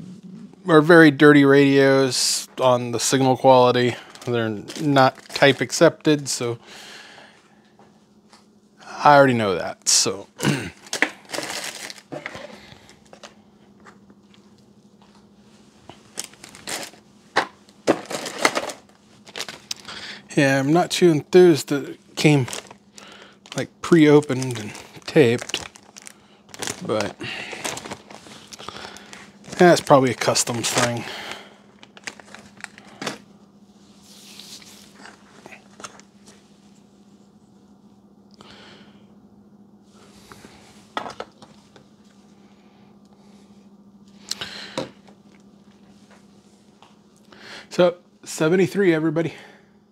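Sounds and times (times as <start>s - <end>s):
faint steady hum: 0.0s - 49.9s
plastic packaging crinkling: 3.0s - 6.1s, 10.8s - 13.4s, 15.9s - 20.1s, 21.6s - 33.3s
soft rustle: 33.7s - 35.4s.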